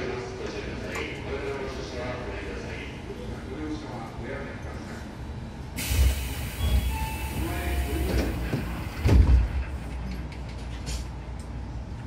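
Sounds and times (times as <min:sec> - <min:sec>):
train car low hum: 0:00.0 - 0:12.0
train doors shutting thud: 0:05.8 - 0:10.0.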